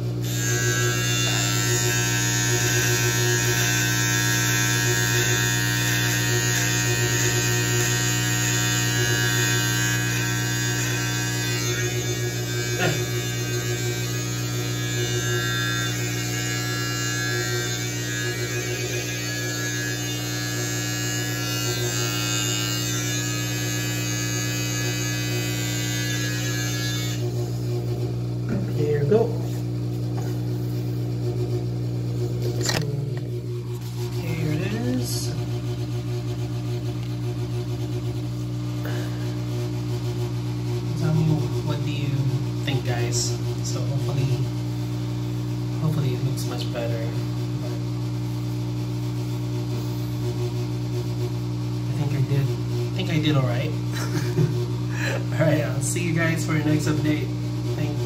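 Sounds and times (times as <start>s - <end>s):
electric beard trimmer buzzing: 0.0s - 30.8s, 32.2s - 37.2s, 38.8s - 39.5s, 40.9s - 43.9s, 51.9s - 58.0s.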